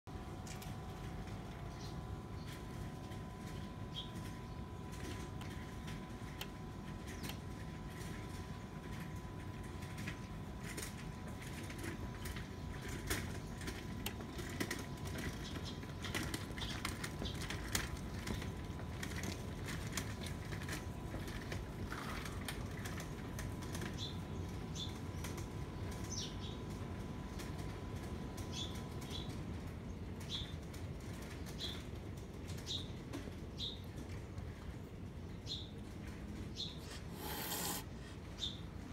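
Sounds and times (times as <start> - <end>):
kitten chewing and licking: 36.8 - 38.2.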